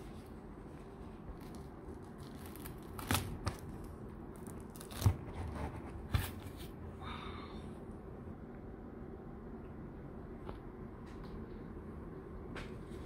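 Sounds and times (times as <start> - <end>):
durian husk cracking: 1.1 - 5.3
fibrous tearing: 1.3 - 5.5.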